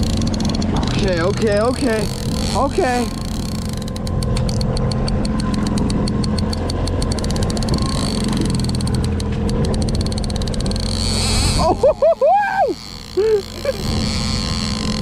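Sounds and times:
boat engine running: 0.0 - 15.0
fishing reel clicking: 0.0 - 15.0.

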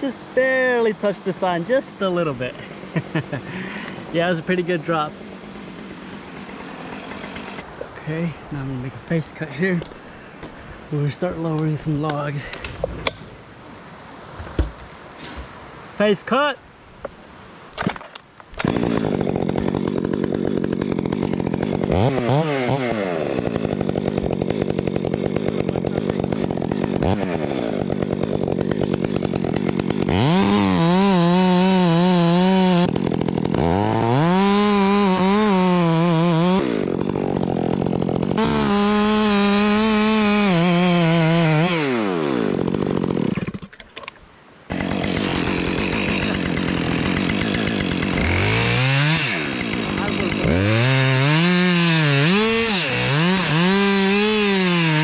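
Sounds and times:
chainsaw cutting wood: 2.8 - 7.8, 17.8 - 43.8, 44.7 - 55.0.

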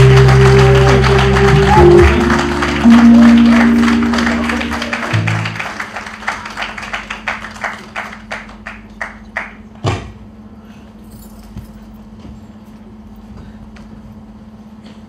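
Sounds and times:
percussive beat: 0.0 - 5.8.

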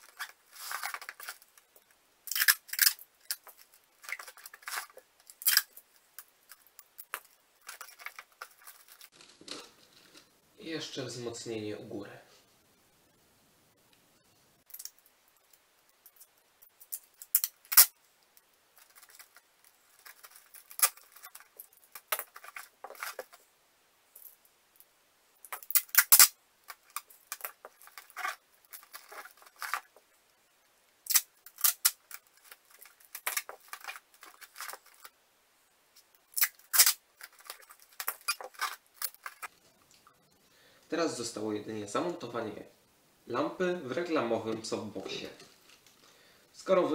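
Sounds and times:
cardboard rustling: 0.0 - 1.8, 3.3 - 5.2, 18.8 - 23.4, 26.7 - 30.0, 32.1 - 35.1
packing tape ripping off roll: 2.3 - 5.8, 16.8 - 17.9, 20.0 - 23.4, 25.5 - 30.0, 31.0 - 35.1, 36.3 - 39.5.

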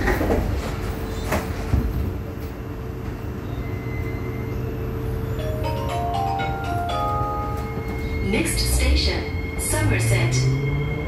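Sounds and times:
sliding train doors shutting: 0.0 - 4.3
train hum: 0.0 - 11.0.

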